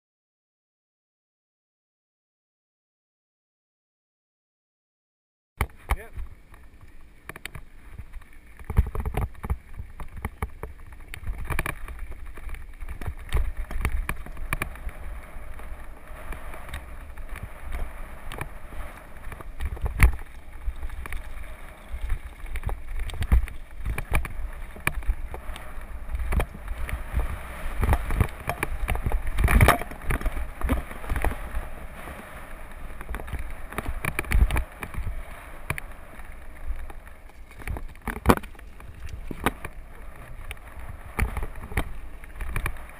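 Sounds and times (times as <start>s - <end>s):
tyres crunching over loose stones: 5.6s - 42.9s
wind rumble on microphone: 5.6s - 42.9s
bike knocks and rattles: 8.6s - 14.9s, 16.4s - 31.6s.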